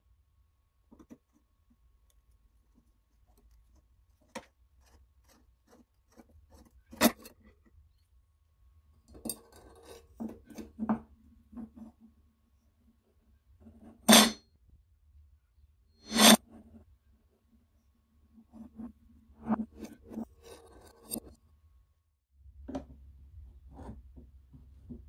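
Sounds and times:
metal plate rattling and scraping: 0:14.1 - 0:14.4, 0:16.1 - 0:16.4.

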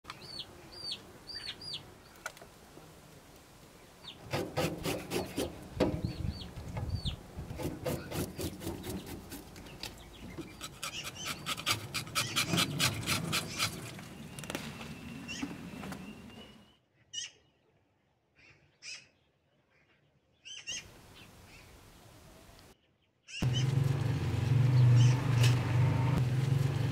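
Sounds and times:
small birds chirping: 0:00.1 - 0:02.4, 0:03.7 - 0:04.3, 0:05.0 - 0:17.6, 0:18.4 - 0:23.8, 0:24.7 - 0:25.6
sponge scrubbing metal plate: 0:04.3 - 0:05.6, 0:07.6 - 0:09.6, 0:10.4 - 0:14.0.

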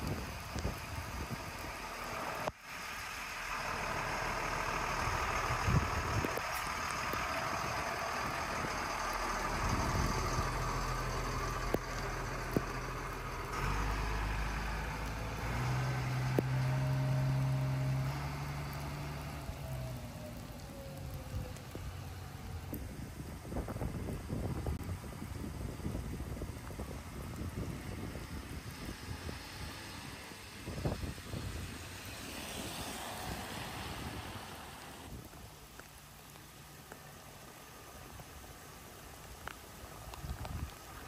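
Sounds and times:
rain falling: 0:00.0 - 0:41.0
truck engine running: 0:00.1 - 0:25.2.

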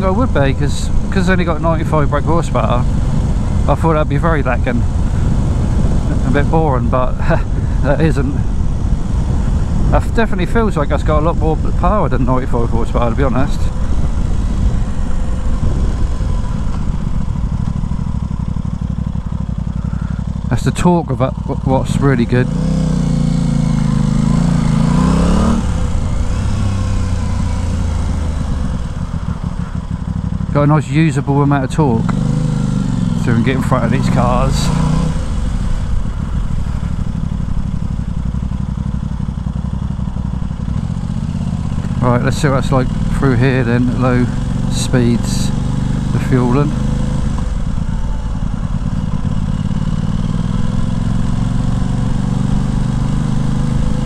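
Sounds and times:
motorcycle engine accelerating: 0:00.0 - 0:54.0
wind rush: 0:13.6 - 0:17.5.

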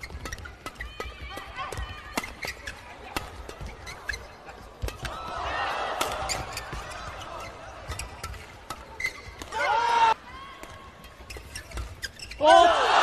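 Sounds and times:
shoes squeaking on court: 0:00.0 - 0:09.7, 0:10.6 - 0:12.4
racket hitting shuttlecock: 0:00.0 - 0:09.8
crowd noise: 0:00.0 - 0:13.0.

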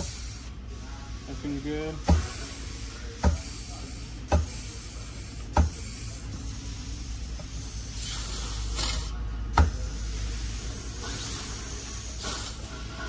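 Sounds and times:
escaping air hiss: 0:07.6 - 0:09.2.

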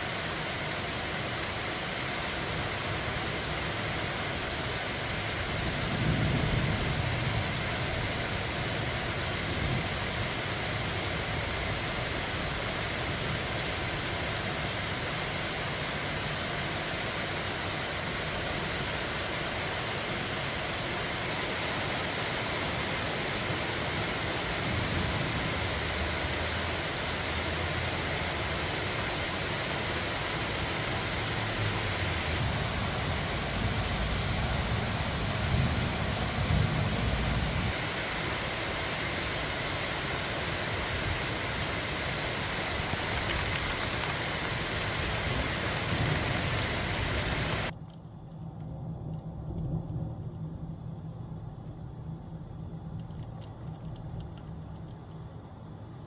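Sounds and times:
heavy rain falling: 0:00.0 - 0:47.7
low rumbles: 0:42.5 - 0:56.0
low hum: 0:47.6 - 0:56.0.

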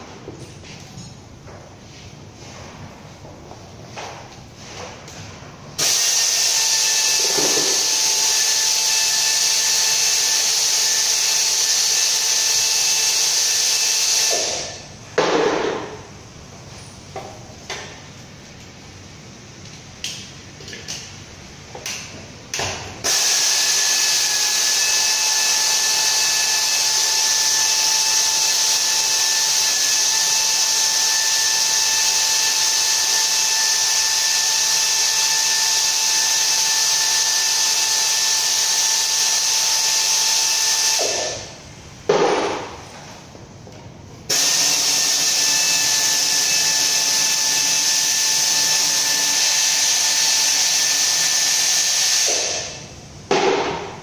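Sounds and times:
power tool whining: 0:05.8 - 0:14.7, 0:23.0 - 0:41.4, 0:44.3 - 0:52.6.

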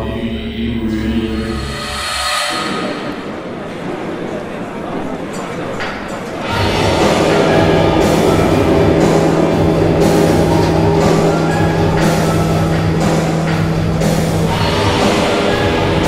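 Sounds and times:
steady low held note: 0:00.0 - 0:04.9, 0:06.4 - 0:16.0
loud rock music: 0:06.4 - 0:16.0.

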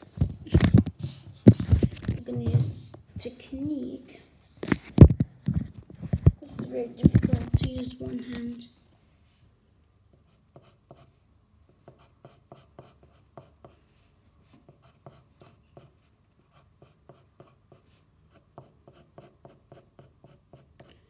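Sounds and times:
pencil scratching on paper: 0:10.1 - 0:21.0.

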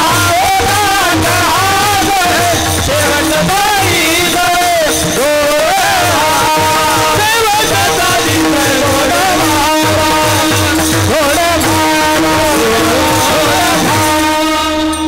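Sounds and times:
hand cymbals: 0:00.0 - 0:15.0
men singing devotional melody: 0:00.0 - 0:15.0
held drone note: 0:05.9 - 0:15.0.

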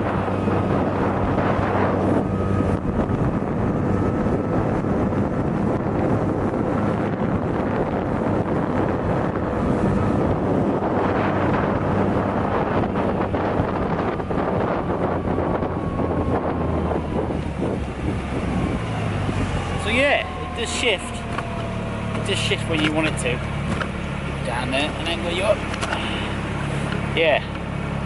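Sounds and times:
water rushing past hull: 0:00.0 - 0:26.9
outboard engine at full throttle: 0:00.0 - 0:28.0
wind buffeting microphone: 0:00.0 - 0:28.0.

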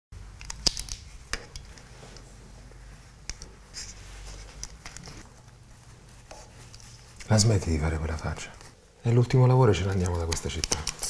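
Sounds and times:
low room hum: 0:00.2 - 0:11.0
sharp clicks and taps: 0:09.8 - 0:11.0.

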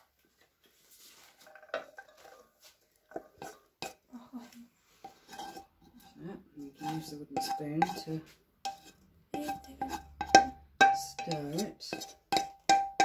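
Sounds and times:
cookware knocking and scraping: 0:01.5 - 0:02.5, 0:03.1 - 0:04.0, 0:05.0 - 0:13.0.

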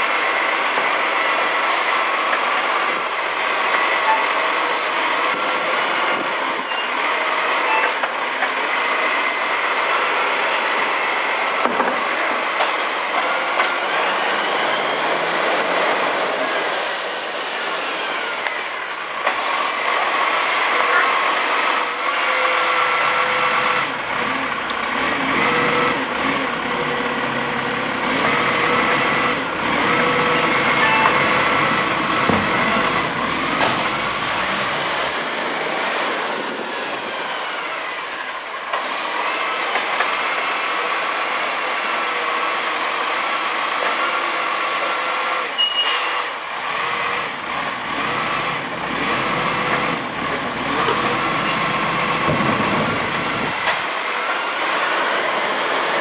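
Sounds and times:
truck diesel engine: 0:00.0 - 0:56.0
air brakes hissing: 0:45.6 - 0:46.4.

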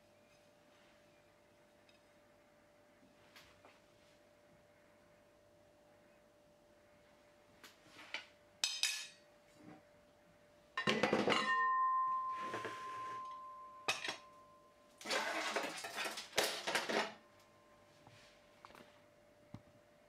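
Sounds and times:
dishes clattering: 0:08.6 - 0:09.2, 0:10.8 - 0:14.3, 0:15.0 - 0:17.2
dishes clinking: 0:08.6 - 0:09.2, 0:10.8 - 0:17.2
metal platter ringing clink: 0:10.8 - 0:16.2.

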